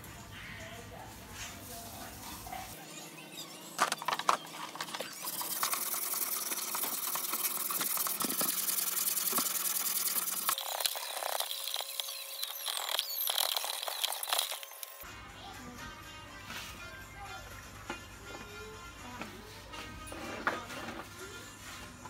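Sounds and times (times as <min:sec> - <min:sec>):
brush scrubbing metal blade: 0:05.2 - 0:14.6.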